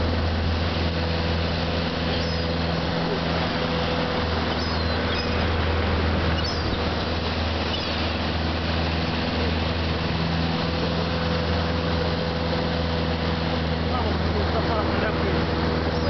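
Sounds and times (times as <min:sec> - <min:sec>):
boat engine humming: 0:00.0 - 0:16.0
water churning in wake: 0:00.0 - 0:16.0
gull calls: 0:04.5 - 0:05.4, 0:06.3 - 0:08.2.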